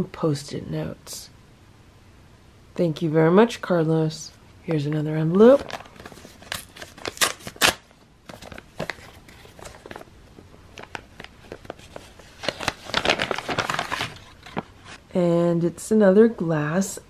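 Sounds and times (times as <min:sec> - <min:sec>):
paper crinkling and rustling: 0:05.4 - 0:15.0
paper envelope tearing: 0:05.5 - 0:10.0, 0:10.8 - 0:15.0.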